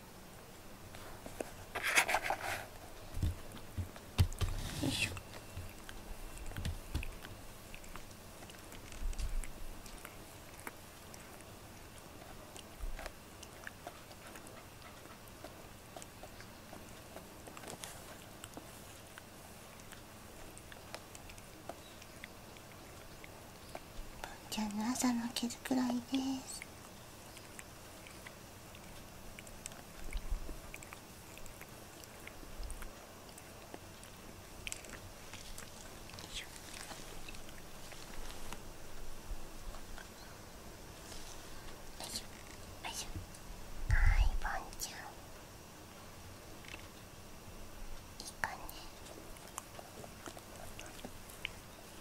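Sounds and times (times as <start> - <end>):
cat licking its fur: 0.9 - 24.5, 26.6 - 39.0.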